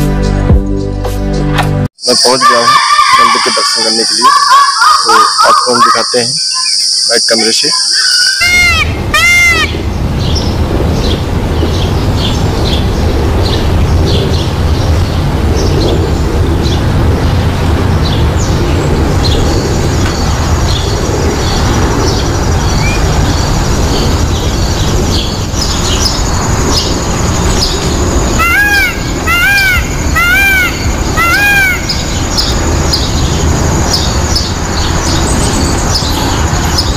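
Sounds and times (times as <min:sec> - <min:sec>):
birds chirping: 0:02.0 - 0:36.9
loud low rumble: 0:08.8 - 0:36.9.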